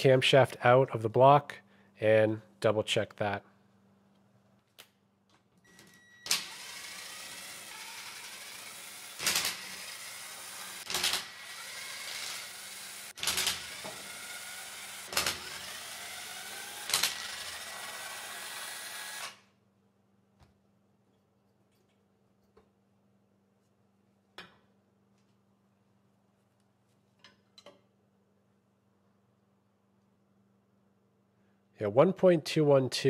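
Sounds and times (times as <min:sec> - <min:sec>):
cordless driver whining: 0:05.7 - 0:19.5.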